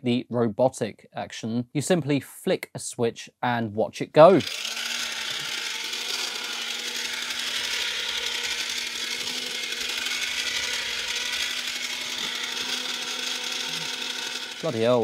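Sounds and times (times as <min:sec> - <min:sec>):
toy motor whirring rattle: 0:04.3 - 0:15.0.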